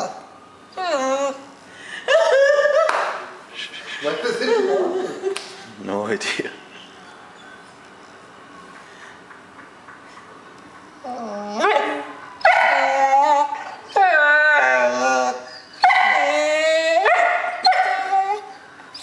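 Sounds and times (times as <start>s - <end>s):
dog howling: 11.0s - 19.0s.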